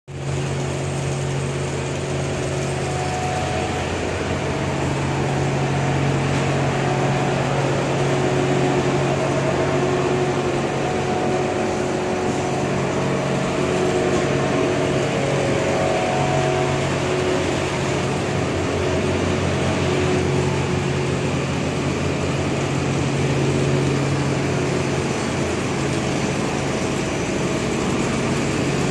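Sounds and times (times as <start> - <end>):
laundry machinery humming: 0.1 - 28.9.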